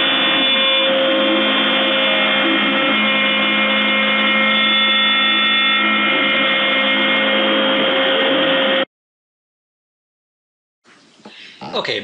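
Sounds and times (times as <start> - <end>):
milling machine spindle whining: 0.0 - 8.9.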